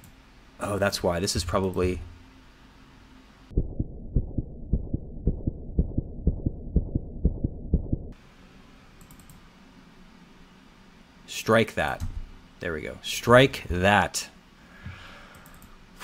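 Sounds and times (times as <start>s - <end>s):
muffled low thumping: 3.5s - 8.2s.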